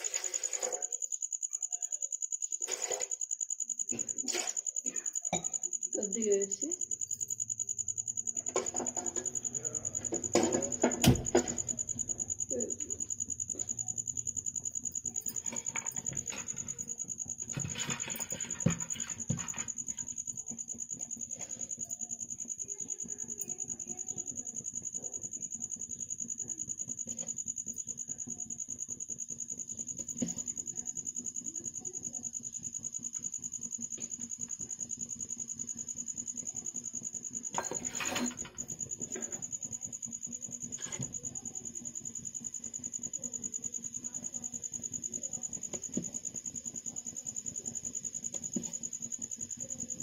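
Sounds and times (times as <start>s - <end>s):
metal clatter: 37.5s - 39.3s
metal plates and ladle clinking: 37.6s - 38.6s.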